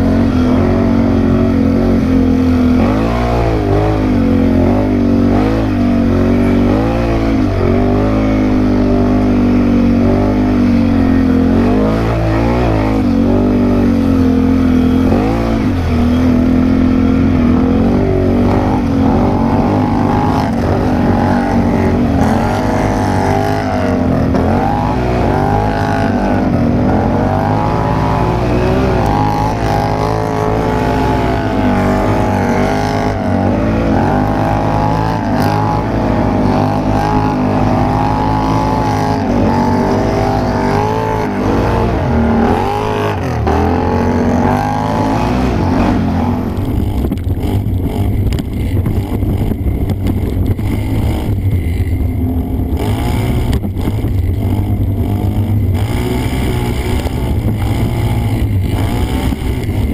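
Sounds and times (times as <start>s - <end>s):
atv engines revving: 0.0s - 59.9s.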